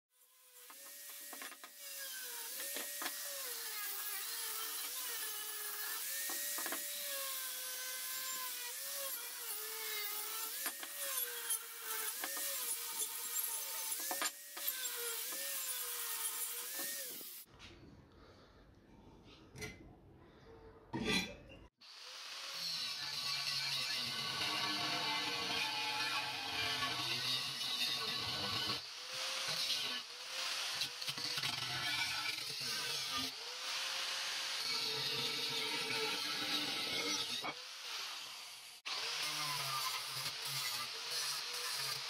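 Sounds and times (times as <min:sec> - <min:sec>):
angle grinder whining: 0:00.3 - 0:17.5.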